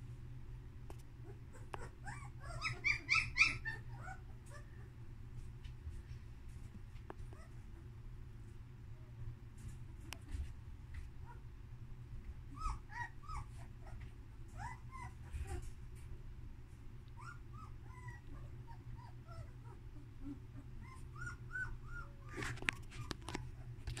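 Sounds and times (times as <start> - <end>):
puppy whimpering: 1.2 - 4.8, 7.3 - 7.6, 12.5 - 15.7, 17.2 - 24.0.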